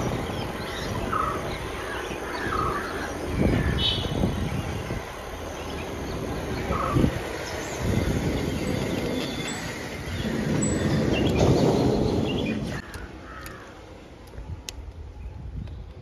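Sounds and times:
wind and bicycle tyres rumbling: 0:00.0 - 0:16.0
crows cawing: 0:01.2 - 0:03.9, 0:12.8 - 0:13.8.

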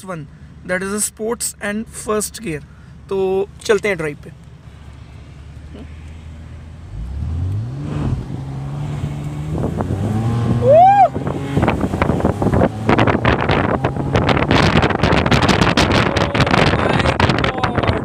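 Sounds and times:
car engine revving: 0:04.4 - 0:18.0
wind noise on microphone: 0:07.2 - 0:18.0.

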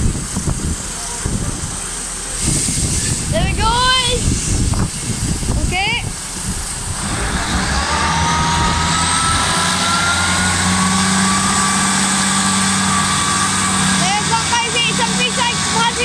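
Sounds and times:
train diesel engines running: 0:00.0 - 0:16.0
train whine rising in pitch: 0:06.1 - 0:16.0.

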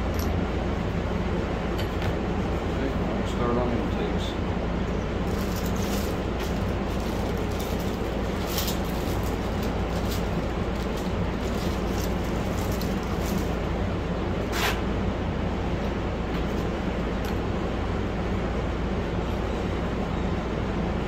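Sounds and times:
machine hum and hiss: 0:00.0 - 0:21.0
plastic bag rustling: 0:05.3 - 0:13.8.

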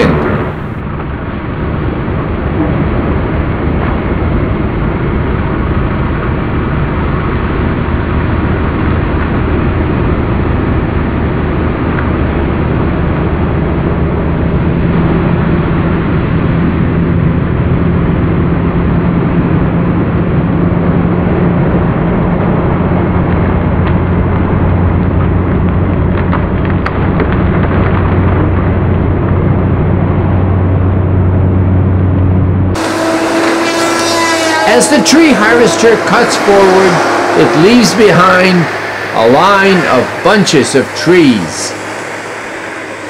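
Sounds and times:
higher hum: 0:00.0 - 0:00.9, 0:31.0 - 0:43.0
deep hum: 0:00.0 - 0:43.0
forestry machine engine running: 0:22.5 - 0:43.0.

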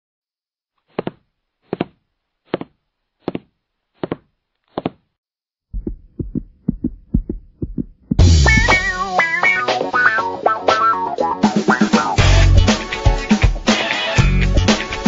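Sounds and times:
heartbeat thumps: 0:05.7 - 0:08.9.

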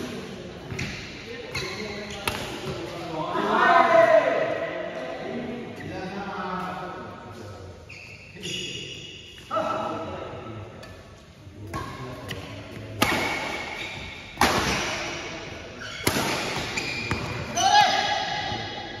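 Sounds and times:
rackets hitting shuttlecock: 0:11.7 - 0:18.1.

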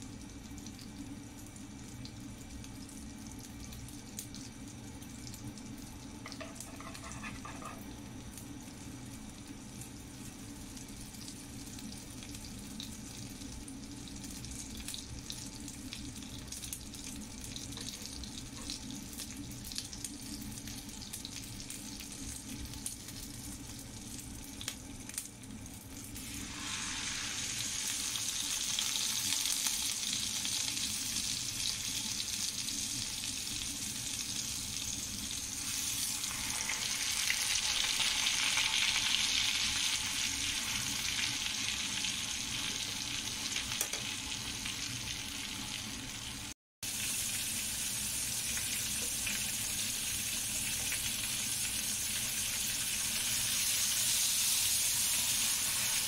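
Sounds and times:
butter sizzling in a wok: 0:00.0 - 0:56.0
steaks searing: 0:26.2 - 0:45.5, 0:46.9 - 0:56.0.

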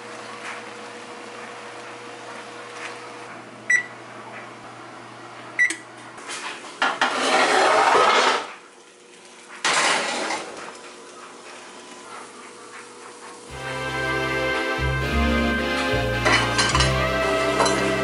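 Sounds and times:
skillet scraping on wire rack: 0:06.3 - 0:08.6, 0:09.6 - 0:10.8.

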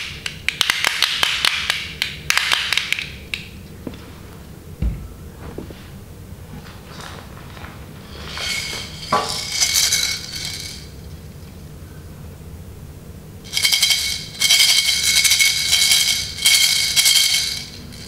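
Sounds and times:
baby rattle shaken: 0:08.3 - 0:10.9, 0:13.5 - 0:18.0.

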